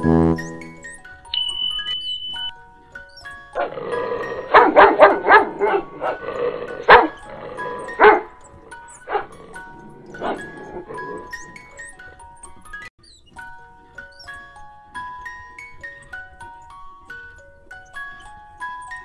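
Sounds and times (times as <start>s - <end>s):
background music with chiming tones: 0.0s - 19.0s
puppy barking: 3.6s - 11.6s.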